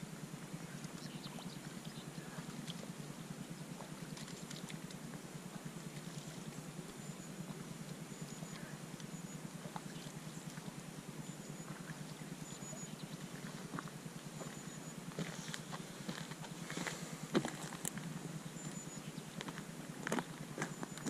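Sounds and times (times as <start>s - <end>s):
low background rumble: 0.0s - 21.0s
boots crunching on gravel: 15.2s - 17.9s.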